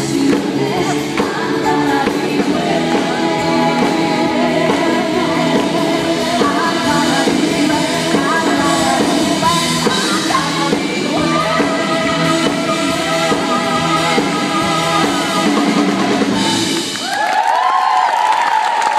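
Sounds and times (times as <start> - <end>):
woman singing lead vocals: 0.0 - 16.8
live pop-dance song: 0.0 - 17.3
crowd cheering: 16.4 - 18.9.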